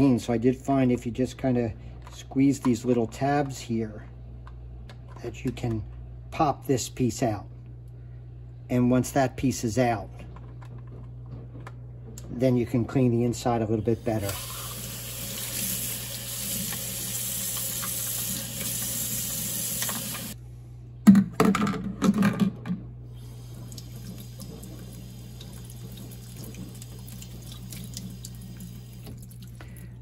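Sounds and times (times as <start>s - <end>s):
faucet water running into sink: 14.0s - 20.4s, 23.2s - 29.7s
faint water drips: 23.5s - 30.0s.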